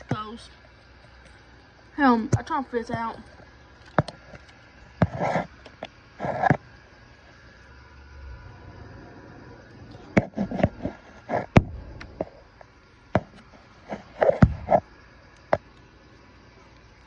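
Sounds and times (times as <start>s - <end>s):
rubbing and scraping on phone: 4.0s - 6.6s, 10.1s - 11.6s, 13.2s - 14.9s.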